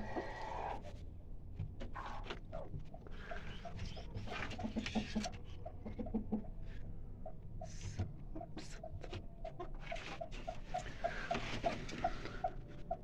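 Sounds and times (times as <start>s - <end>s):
hen clucking: 0.0s - 0.9s, 1.9s - 13.0s.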